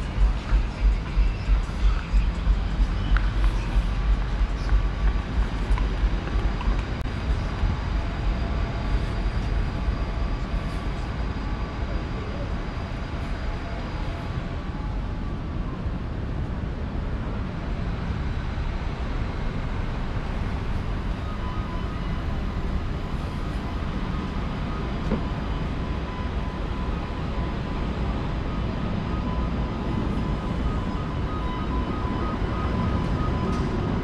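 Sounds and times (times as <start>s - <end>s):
city traffic rumble: 0.0s - 34.0s
faint high electronic tone: 18.2s - 34.0s.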